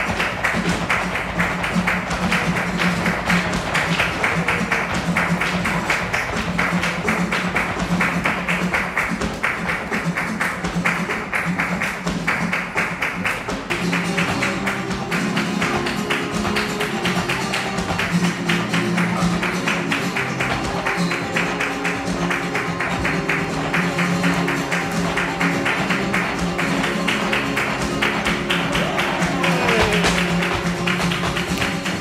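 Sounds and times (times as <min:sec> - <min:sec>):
flamenco guitar: 0:00.0 - 0:32.0
rapid percussive tapping: 0:00.0 - 0:32.0
higher guitar notes: 0:13.6 - 0:32.0.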